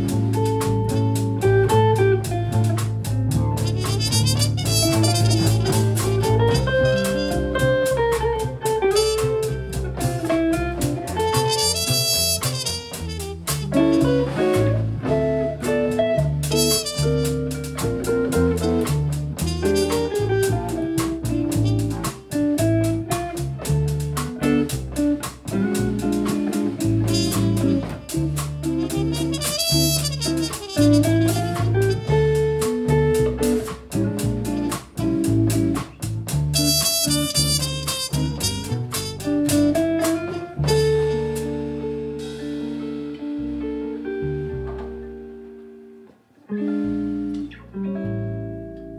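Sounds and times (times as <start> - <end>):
drum kit with cymbals: 0.0 - 45.2
electric guitar chords: 0.0 - 48.9
upright bass: 0.0 - 48.9
trumpet: 3.5 - 10.5, 11.1 - 15.6, 16.2 - 23.1, 26.7 - 35.9, 36.5 - 43.1.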